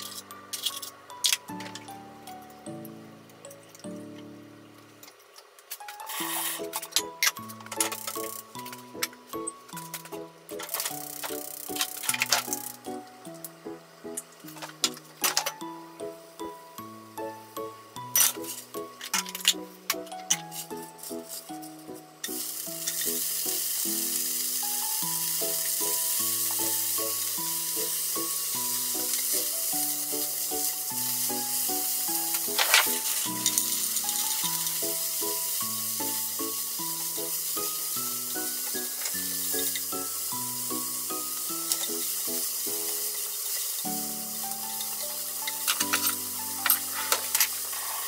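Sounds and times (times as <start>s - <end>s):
vegetables crackling in a pan: 0.0s - 2.3s, 3.6s - 16.2s, 17.3s - 48.0s
spinach sizzling in a frying pan: 3.8s - 48.0s
chopsticks stirring vegetables: 25.3s - 48.0s.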